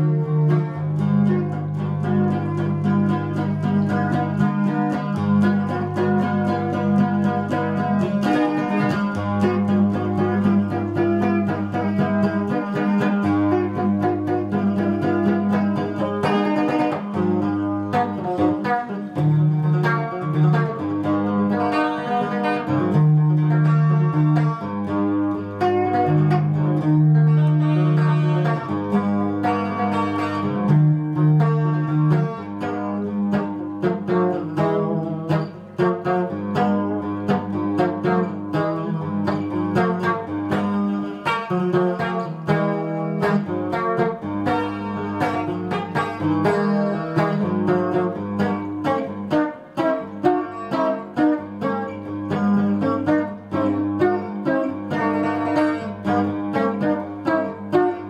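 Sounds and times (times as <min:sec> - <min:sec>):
fingerstyle electric guitar: 0:00.0 - 0:58.0.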